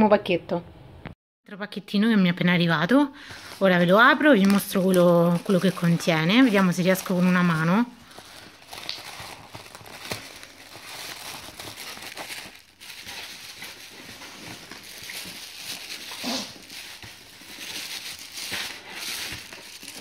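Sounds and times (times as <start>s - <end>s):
paper envelope crinkling: 3.3s - 20.0s.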